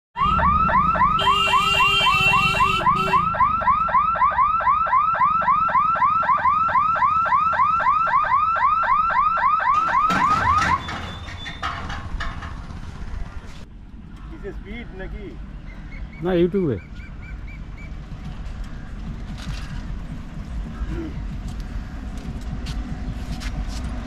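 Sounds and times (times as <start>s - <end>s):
steady horn tone: 1.2s - 3.3s.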